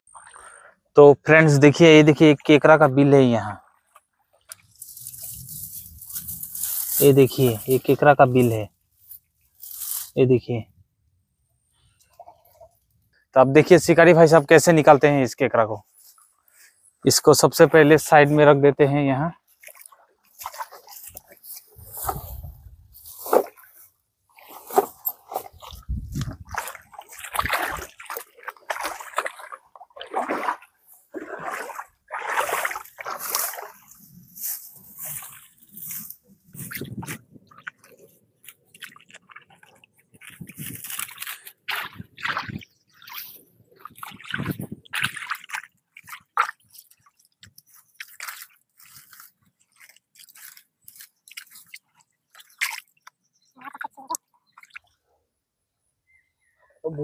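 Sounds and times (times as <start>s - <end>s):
wet mud squelches: 1.7s - 10.2s, 19.3s - 55.0s
grass roots crunching: 4.4s - 10.2s, 19.5s - 52.9s
hands splashing in muddy water: 19.5s - 23.8s, 24.4s - 53.2s.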